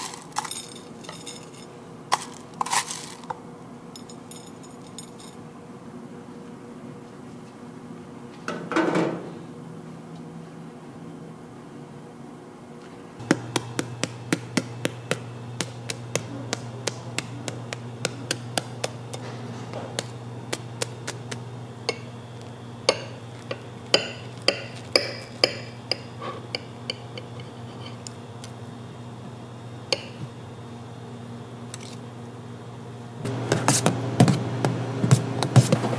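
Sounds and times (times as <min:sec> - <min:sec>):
utensils clicking and tapping: 0:00.0 - 0:03.4, 0:13.2 - 0:28.6, 0:29.9 - 0:30.2
steady low hum: 0:00.0 - 0:08.4, 0:09.2 - 0:35.9.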